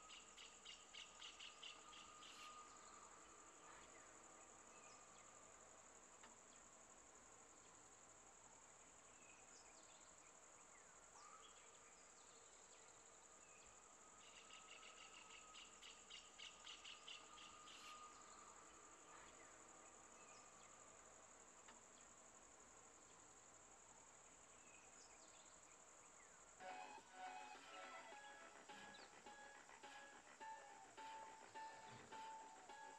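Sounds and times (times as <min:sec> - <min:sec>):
high-pitched insect drone: 0:26.6 - 0:32.9
pulsed chirps: 0:26.6 - 0:32.9.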